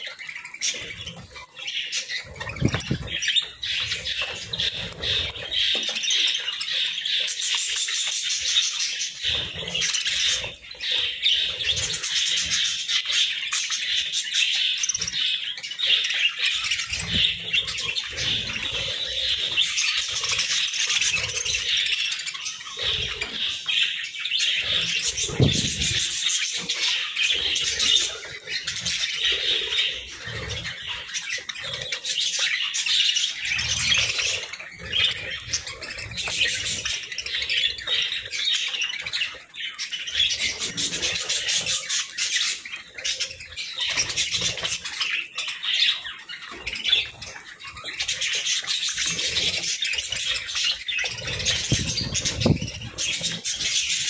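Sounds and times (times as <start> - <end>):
budgerigars chattering: 0.0 - 54.0
wings fluttering: 0.6 - 6.2, 24.6 - 32.4, 46.5 - 54.0.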